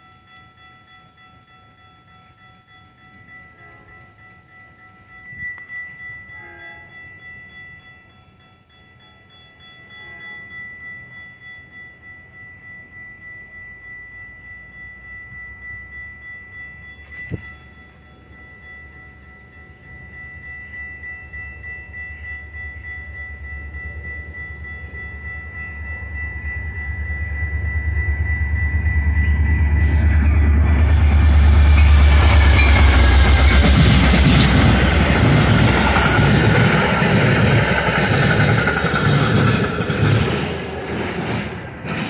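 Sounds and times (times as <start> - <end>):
crossing bell ringing: 0.0 - 42.0
diesel locomotive rumble: 22.5 - 42.0
train wheels rushing on rails: 23.3 - 42.0
clickety-clack over rail joints: 31.6 - 42.0.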